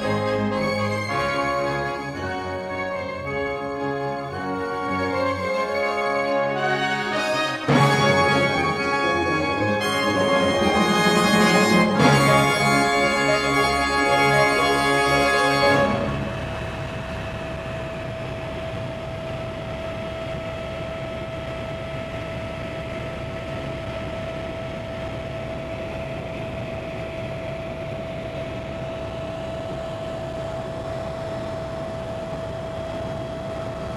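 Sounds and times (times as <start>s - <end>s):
helicopter flying: 0.0s - 33.9s.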